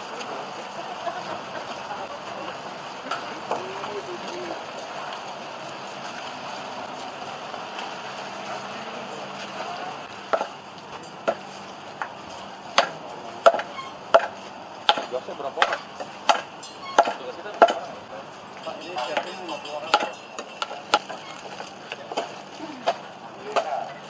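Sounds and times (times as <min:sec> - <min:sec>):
cleavers chopping meat and bone: 0:10.2 - 0:10.6, 0:11.2 - 0:12.1, 0:12.7 - 0:18.0, 0:19.0 - 0:24.0.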